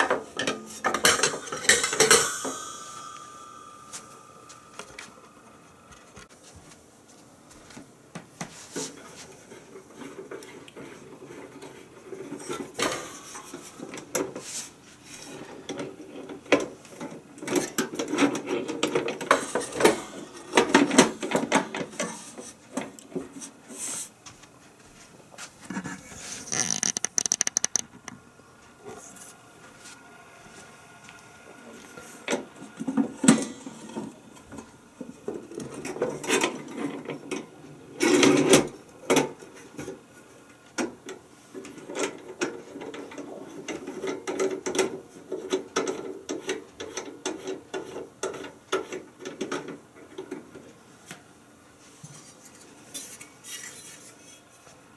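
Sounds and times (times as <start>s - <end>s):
wire rack clattering on metal: 0.0s - 5.2s.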